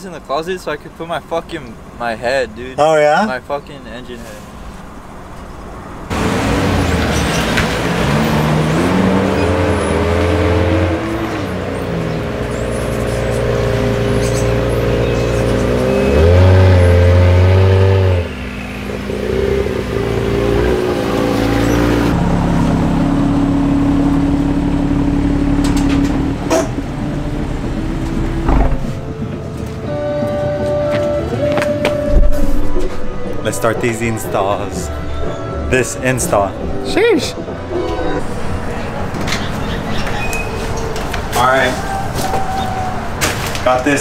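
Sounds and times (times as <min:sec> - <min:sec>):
car engine revving and idling: 0:06.1 - 0:33.9
car door clunk: 0:28.2 - 0:29.4.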